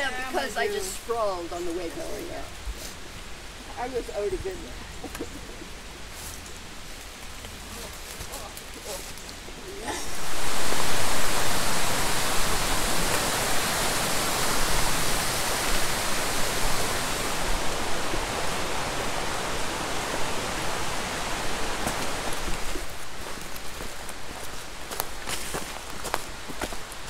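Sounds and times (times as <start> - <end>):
loud rushing hiss: 9.7 - 23.2.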